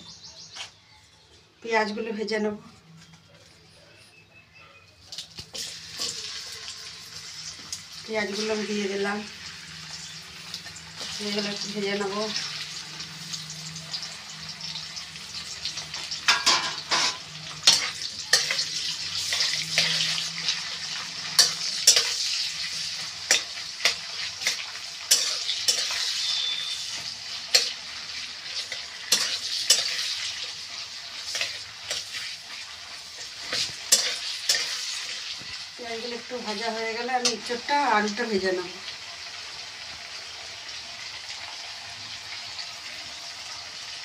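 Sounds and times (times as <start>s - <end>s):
onions sizzling in hot oil: 5.1s - 44.0s
metal spatula scraping pan: 16.3s - 35.2s.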